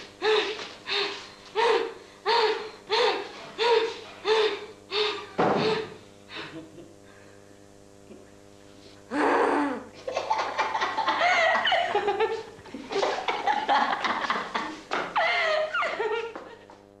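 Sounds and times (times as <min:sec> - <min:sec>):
person laughing hard: 0:05.6 - 0:07.0, 0:09.6 - 0:16.8.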